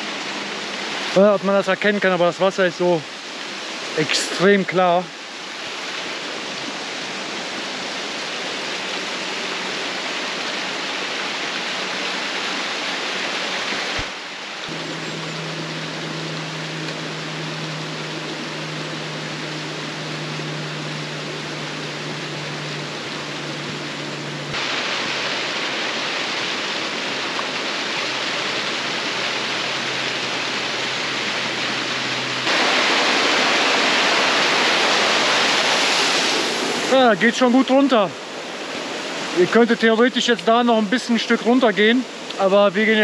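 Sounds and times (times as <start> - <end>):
waterfall rushing: 0.0 - 43.0.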